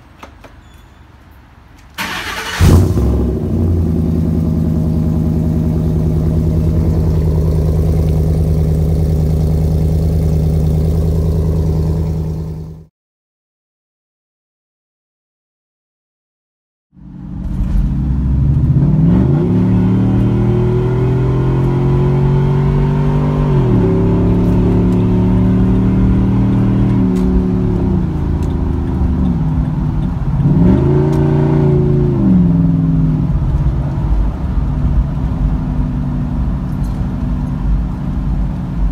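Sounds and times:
car engine and exhaust revving: 2.0 - 12.9, 17.0 - 38.9.

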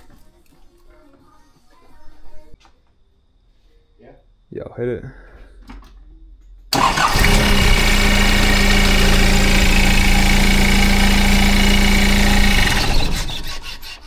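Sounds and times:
diesel engine cranking and idling: 6.7 - 13.7.

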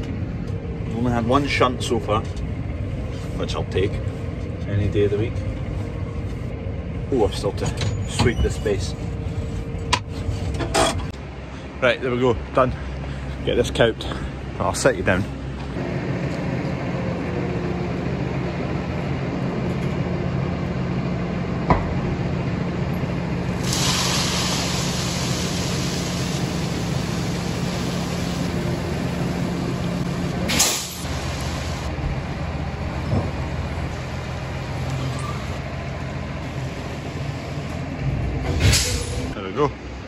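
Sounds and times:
tractor engine running: 12.4 - 38.5.

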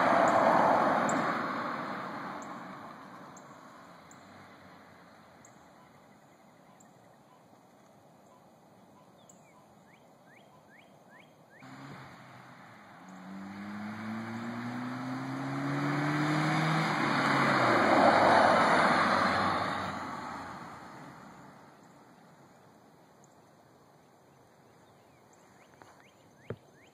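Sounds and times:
car engine accelerating past: 0.0 - 5.3, 11.6 - 21.8.

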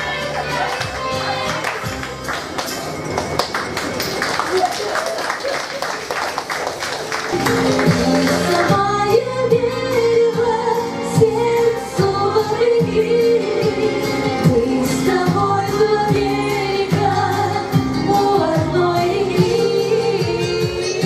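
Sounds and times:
instrumental backing: 7.3 - 21.0
woman singing into a microphone: 8.3 - 21.0.

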